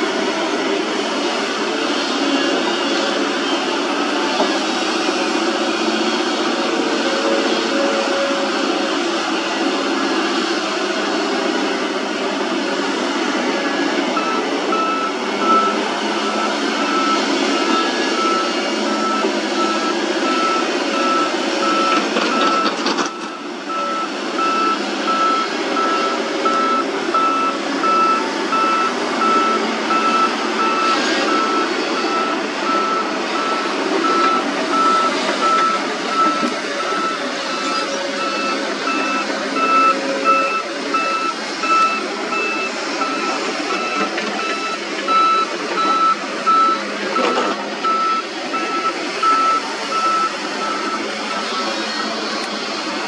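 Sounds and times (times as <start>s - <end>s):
diesel engine running: 0.0s - 53.0s
hydraulics running: 0.2s - 53.0s
backup alarm beeping: 14.2s - 51.8s.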